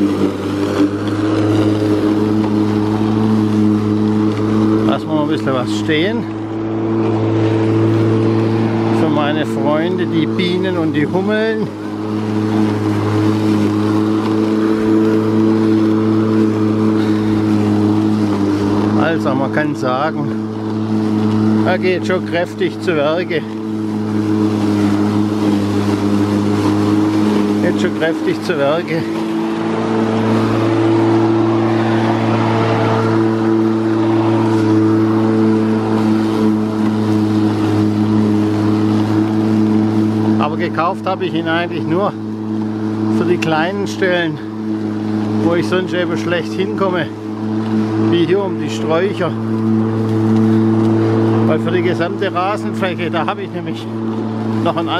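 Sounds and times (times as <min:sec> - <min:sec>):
grass being cut: 0:00.0 - 0:54.9
lawn mower humming: 0:00.0 - 0:54.9.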